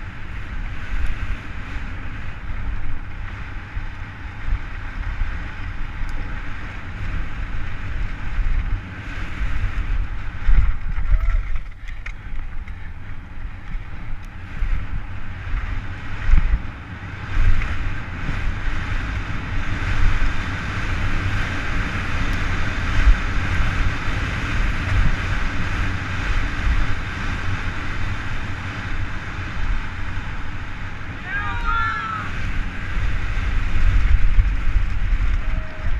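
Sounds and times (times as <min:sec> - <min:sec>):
tyres rumbling on gravel: 0:00.0 - 0:35.9
wind rushing over camera: 0:00.0 - 0:35.9.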